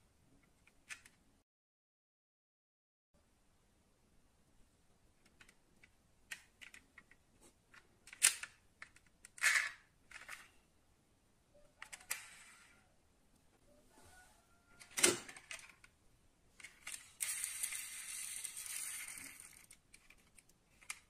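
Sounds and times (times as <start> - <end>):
toy car clicking when handled: 8.1 - 10.5, 11.8 - 12.4, 16.6 - 21.0.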